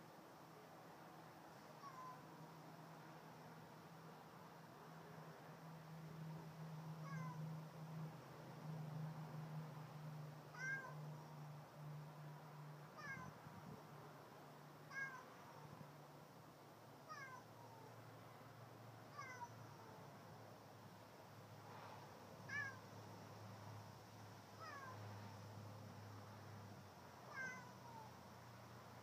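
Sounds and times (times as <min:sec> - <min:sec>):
cat meowing: 0:01.8 - 0:02.2, 0:07.0 - 0:07.4, 0:10.5 - 0:11.0, 0:13.0 - 0:13.4, 0:14.9 - 0:15.3, 0:17.1 - 0:17.8, 0:19.1 - 0:19.6, 0:22.5 - 0:22.8, 0:24.6 - 0:25.0, 0:27.3 - 0:28.1.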